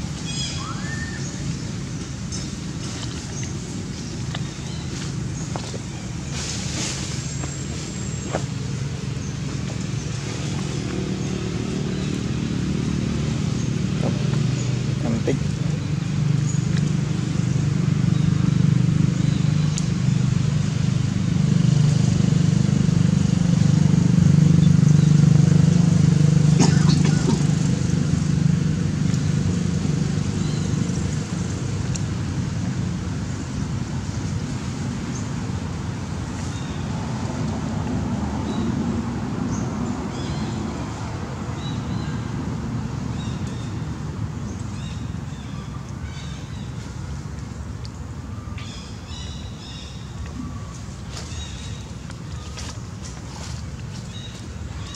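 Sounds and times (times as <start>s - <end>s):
engine humming: 0.0s - 54.9s
small birds chirping: 0.1s - 21.2s
steady low rumble: 1.2s - 48.4s.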